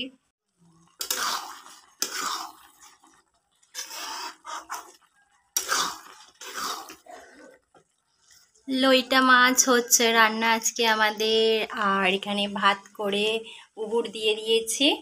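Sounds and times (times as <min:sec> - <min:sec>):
metal spatula scraping a pan: 0:00.8 - 0:07.3.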